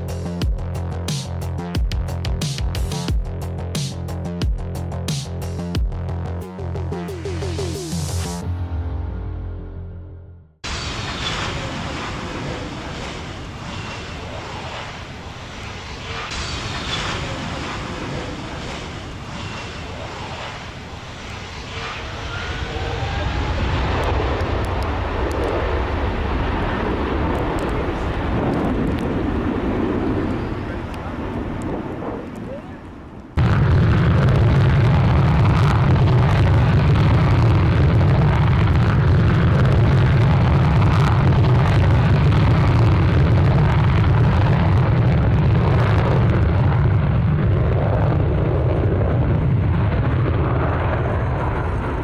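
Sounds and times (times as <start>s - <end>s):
high engine whine: 0.0s - 52.0s
jet airliner passing overhead: 10.6s - 52.0s.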